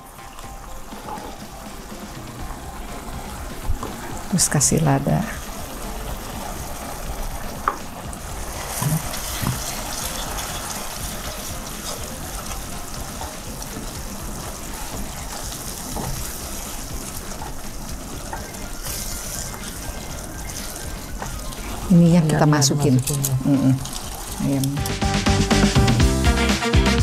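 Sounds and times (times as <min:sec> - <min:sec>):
sauce simmering: 0:00.0 - 0:25.9.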